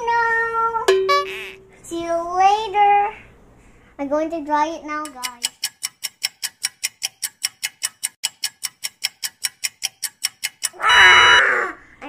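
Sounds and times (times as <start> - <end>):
clock ticking: 5.0 - 11.4.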